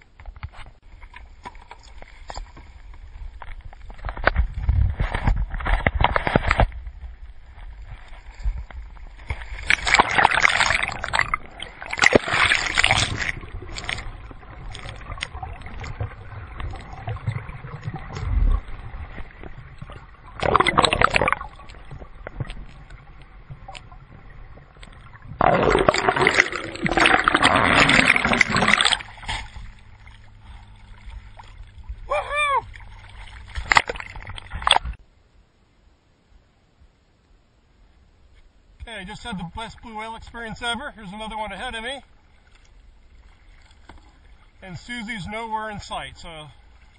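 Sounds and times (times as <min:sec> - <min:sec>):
water sloshing and splashing: 0:00.0 - 0:35.0, 0:40.6 - 0:46.9
muffled underwater gurgling: 0:09.8 - 0:33.0.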